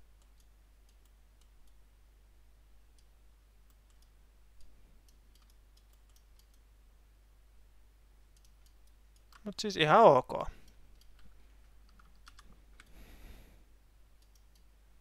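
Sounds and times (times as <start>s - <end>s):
computer mouse clicks: 0.2s - 1.8s, 2.9s - 6.7s, 8.3s - 9.5s, 10.6s - 13.0s, 14.2s - 14.7s.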